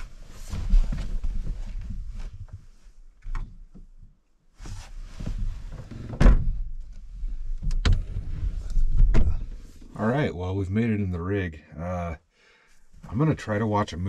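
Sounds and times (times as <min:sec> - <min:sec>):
loud thunk: 0:06.2 - 0:06.6.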